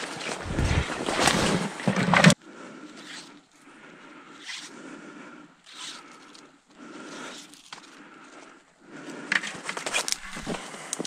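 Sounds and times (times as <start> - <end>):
footsteps crunching in snow: 0.0 - 1.9
branches rustling against clothing: 0.0 - 3.6.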